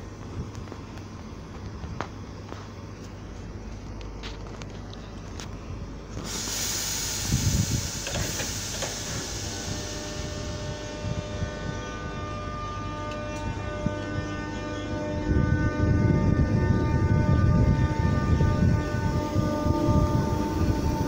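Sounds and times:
train electrical whine: 0.0s - 21.0s
air hissing: 6.2s - 11.2s, 19.1s - 21.0s.

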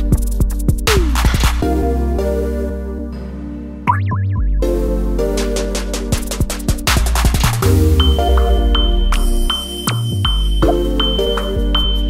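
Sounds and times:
electronic synth music: 0.0s - 12.0s
high ping tone: 8.0s - 12.0s.

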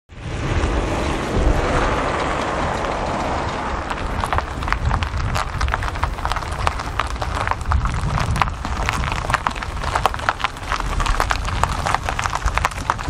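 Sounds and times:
traffic rumble: 0.1s - 13.0s.

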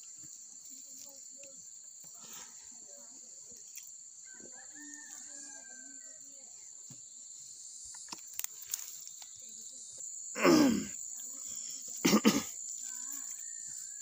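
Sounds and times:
insects buzzing: 0.0s - 14.0s
faint rooster crowing: 4.2s - 6.5s, 13.0s - 14.0s.

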